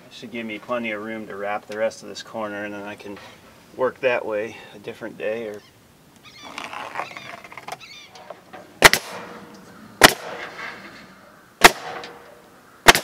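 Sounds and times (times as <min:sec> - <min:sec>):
pneumatic stapler firing into shingles: 0:11.6 - 0:12.2.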